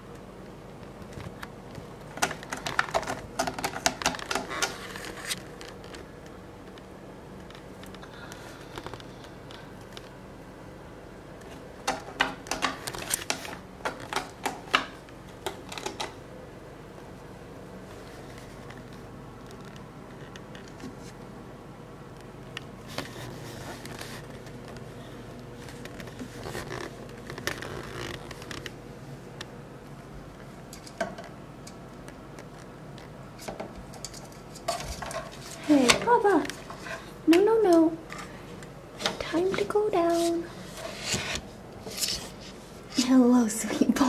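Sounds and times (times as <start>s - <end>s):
ferret clicks scratches and creaks: 1.0s - 6.1s, 25.6s - 28.8s
ferret claws clicking and tapping: 2.1s - 4.8s, 11.8s - 16.2s.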